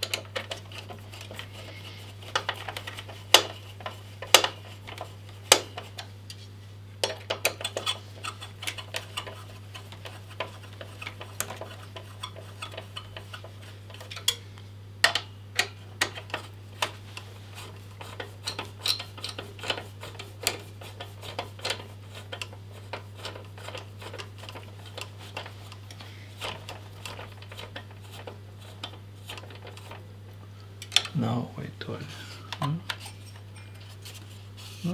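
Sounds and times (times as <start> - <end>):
steady low hum: 0.0 - 34.9
screwdriver clicking on metal: 18.0 - 25.1.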